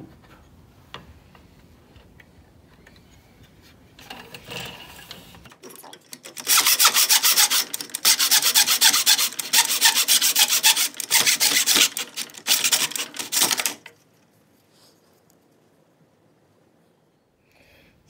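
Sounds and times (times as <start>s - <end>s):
hand saw cutting wood: 6.3s - 13.8s.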